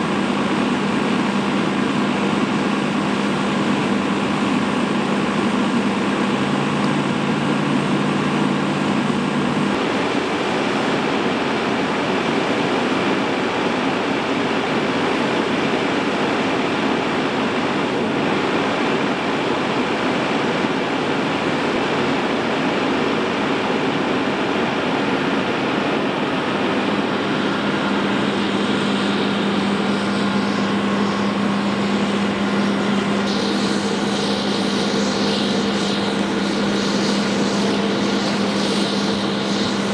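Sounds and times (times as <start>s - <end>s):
steady low hum: 0.0s - 39.9s
fire hose spraying: 26.3s - 39.9s
fire burning: 27.0s - 39.9s.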